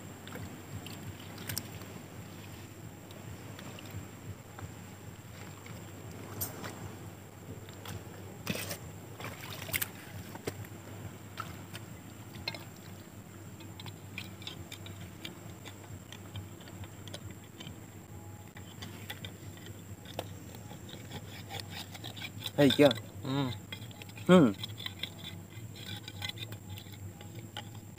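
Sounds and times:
low wind rumble: 0:00.0 - 0:25.9
rod scraping and clicking in rock: 0:08.4 - 0:08.8, 0:13.6 - 0:17.8, 0:18.6 - 0:27.9.

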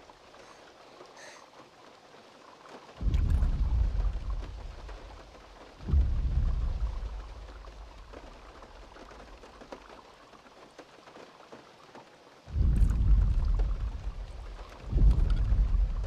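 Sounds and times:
steady rain: 0:00.0 - 0:16.0
deep booming footfalls: 0:03.0 - 0:05.2, 0:05.8 - 0:09.4, 0:12.5 - 0:16.0.

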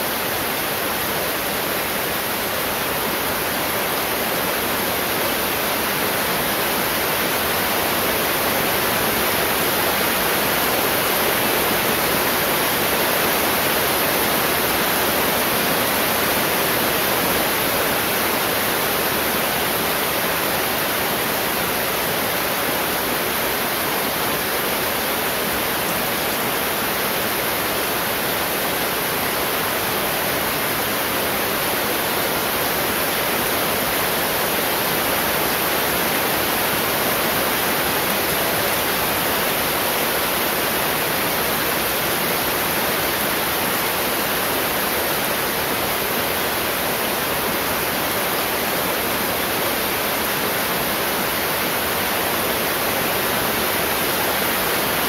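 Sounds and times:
heavy rain falling: 0:00.0 - 0:55.0.

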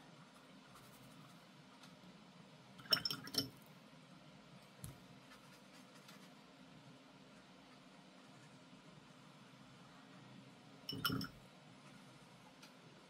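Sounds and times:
light glass clinks: 0:10.9 - 0:11.4.

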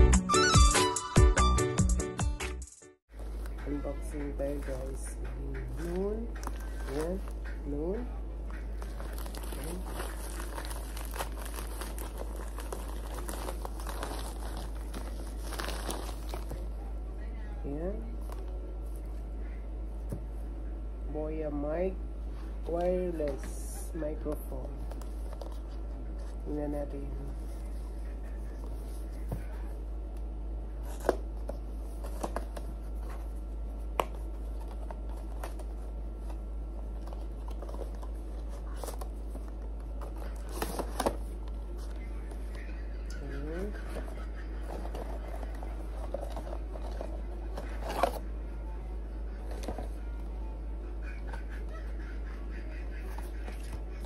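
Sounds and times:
steady low hum: 0:03.1 - 0:54.0
cardboard box handled and opened: 0:08.8 - 0:16.6
plastic bag crinkling: 0:08.8 - 0:16.7.

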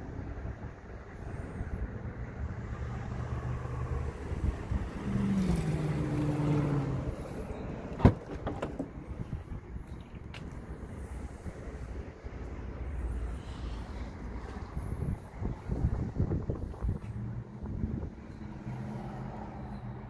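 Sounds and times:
vehicle engine humming: 0:00.0 - 0:20.0
tailgate latch clicking: 0:08.0 - 0:09.0.

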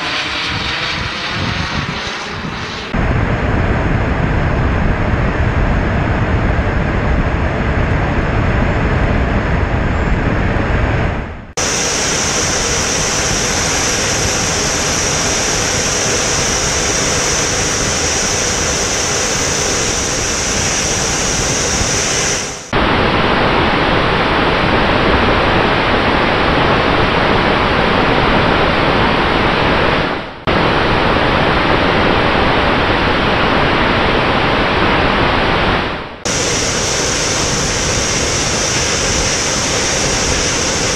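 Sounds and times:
rushing airflow on microphone: 0:00.0 - 0:40.9
high hiss: 0:11.6 - 0:22.7, 0:36.3 - 0:40.9.

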